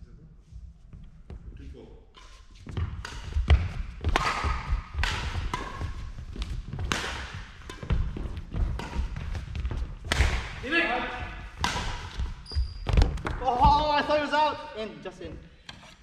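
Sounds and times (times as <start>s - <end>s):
racket hitting shuttlecock: 2.2s - 10.6s, 11.3s - 13.4s
footsteps on wooden floor: 2.4s - 10.1s.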